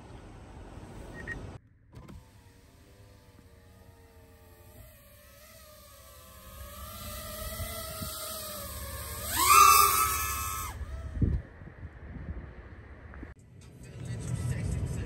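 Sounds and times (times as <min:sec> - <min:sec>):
drone motors whining: 0:01.9 - 0:11.9.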